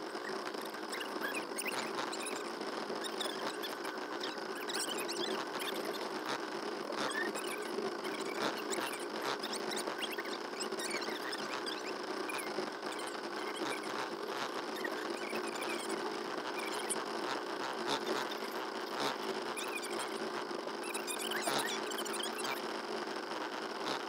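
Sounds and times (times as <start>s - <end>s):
faint clicks and squeaks: 0.0s - 24.0s.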